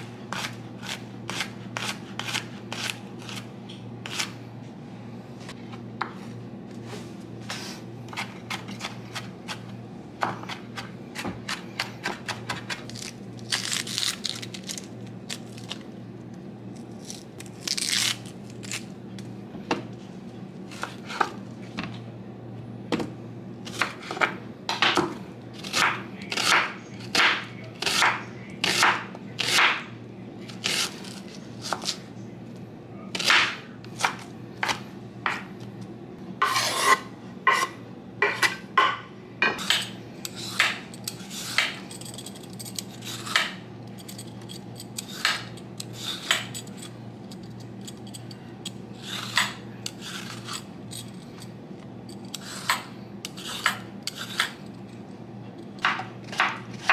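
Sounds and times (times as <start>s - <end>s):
knife chopping onion on wooden board: 0.3s - 4.3s, 10.2s - 12.9s, 23.7s - 29.8s.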